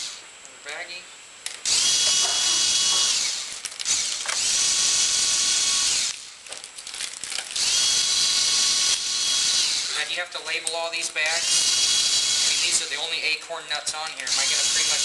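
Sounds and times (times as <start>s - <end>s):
electric ratchet whining: 1.6s - 10.0s, 11.2s - 13.0s, 14.2s - 15.0s.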